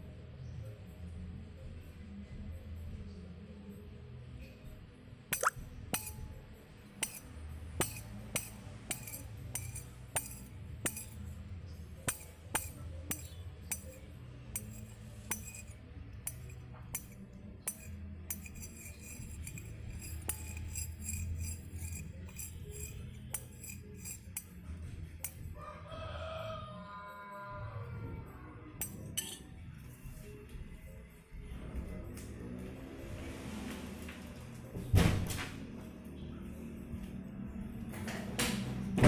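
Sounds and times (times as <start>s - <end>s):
background music with percussion: 5.3s - 6.3s.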